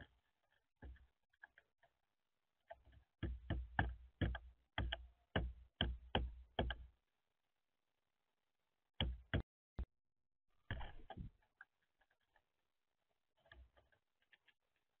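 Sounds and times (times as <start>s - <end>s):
bird bill knocking on wood: 3.2s - 6.8s.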